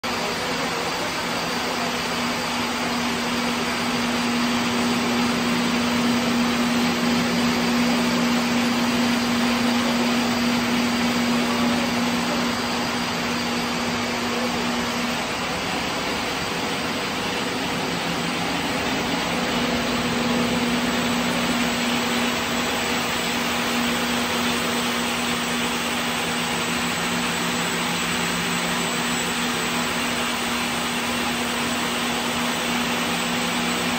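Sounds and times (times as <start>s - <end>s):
low machine hum: 0.1s - 33.9s.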